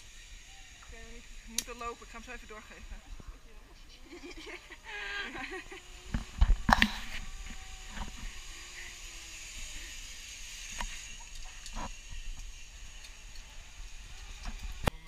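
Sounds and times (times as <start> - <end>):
zipline pulleys hissing on cable: 0.0 - 15.0.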